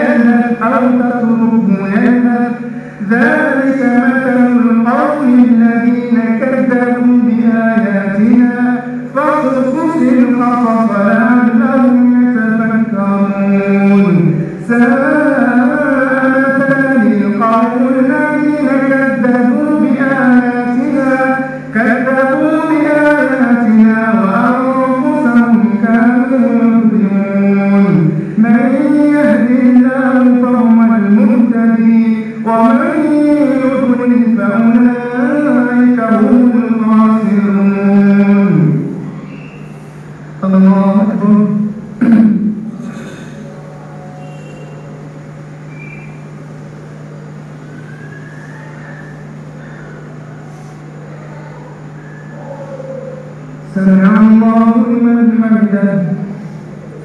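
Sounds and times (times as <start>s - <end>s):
low electrical hum: 0.0s - 57.0s
man chanting melodically: 0.0s - 57.0s
room noise hiss: 0.0s - 57.0s
faint short whistle-like tones: 39.2s - 39.8s, 44.2s - 44.9s, 45.7s - 46.3s, 47.8s - 49.8s.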